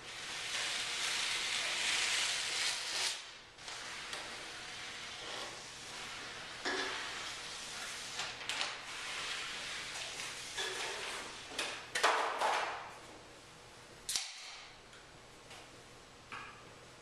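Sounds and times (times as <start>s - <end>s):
objects scraping and rustling: 0.1s - 11.8s.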